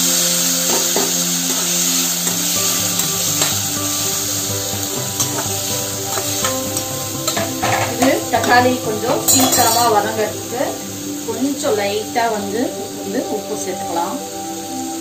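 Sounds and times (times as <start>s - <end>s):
vegetables sizzling in oil: 0.0s - 15.0s
spatula scraping metal pan: 0.7s - 10.2s.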